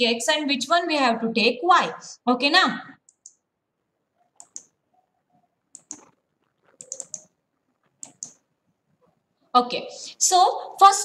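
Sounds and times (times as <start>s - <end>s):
computer mouse clicks: 3.1s - 3.4s, 4.2s - 4.8s, 5.7s - 8.4s.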